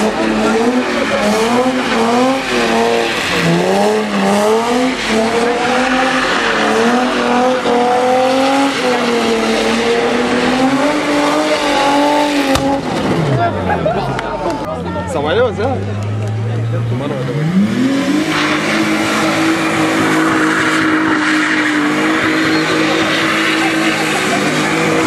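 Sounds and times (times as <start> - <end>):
car engine at high revs: 0.0 - 25.0
tyres screeching: 0.4 - 12.8, 18.2 - 25.0.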